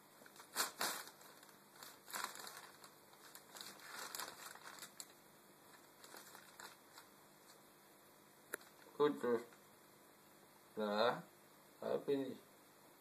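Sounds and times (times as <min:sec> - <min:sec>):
plastic bag crinkling: 0:00.2 - 0:07.6.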